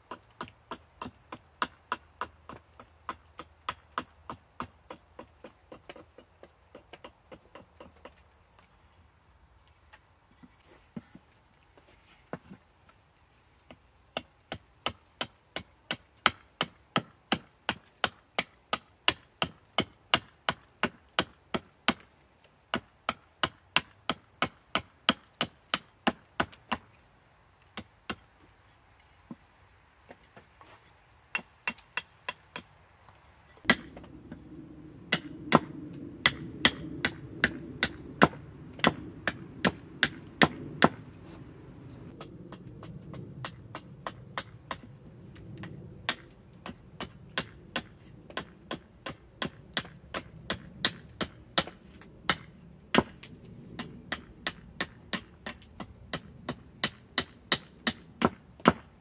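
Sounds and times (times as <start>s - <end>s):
axe chopping wood: 14.2s - 22.1s, 22.7s - 26.9s, 33.6s - 34.1s, 35.1s - 41.1s, 46.1s - 58.9s.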